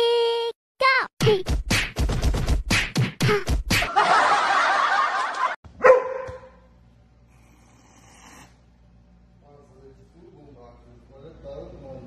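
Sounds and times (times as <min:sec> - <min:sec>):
dog barking: 0:05.8 - 0:06.7.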